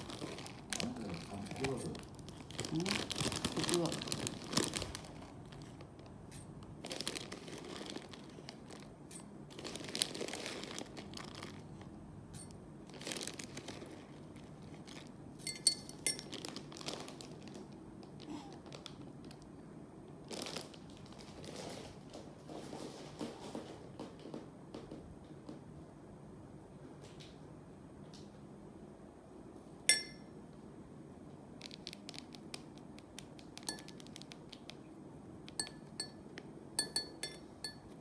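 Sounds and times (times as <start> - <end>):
plastic bag crinkling: 0.0 - 12.0, 12.9 - 15.2, 15.9 - 19.4, 20.2 - 22.0, 31.6 - 34.7
sharp glass clink: 15.5 - 16.2, 29.9 - 30.3, 36.8 - 37.9.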